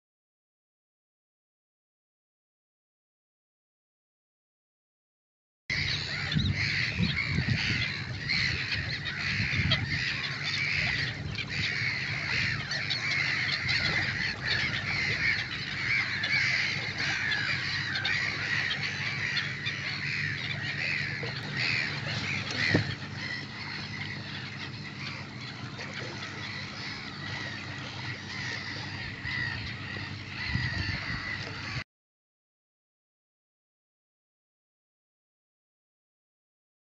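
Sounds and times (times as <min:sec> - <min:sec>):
gulls calling: 0:05.7 - 0:31.8
steady low rumble: 0:05.8 - 0:31.8.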